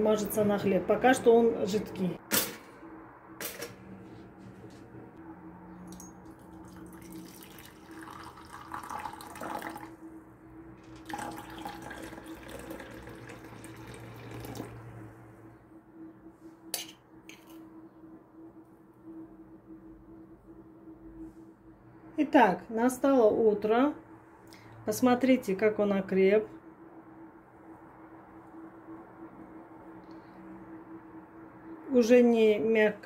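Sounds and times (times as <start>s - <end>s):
steady low hum: 0.0s - 33.0s
water pouring into a teacup: 5.9s - 10.0s, 11.0s - 14.9s.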